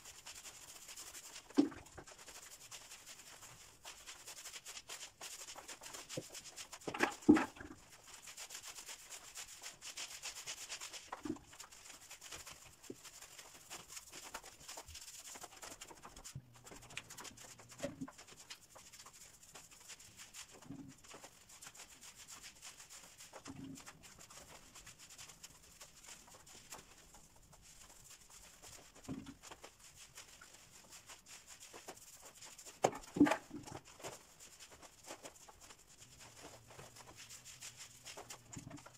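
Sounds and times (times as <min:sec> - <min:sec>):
paint roller rubbing on wall: 0:00.0 - 0:38.9.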